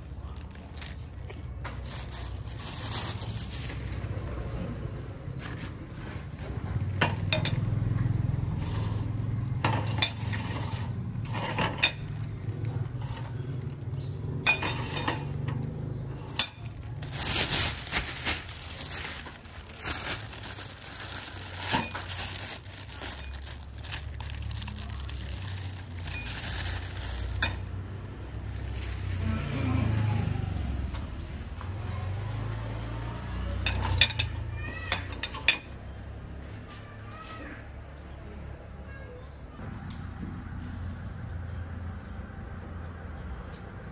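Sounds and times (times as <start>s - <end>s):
dishes and cutlery clinking: 14.4s - 15.5s, 33.6s - 35.8s.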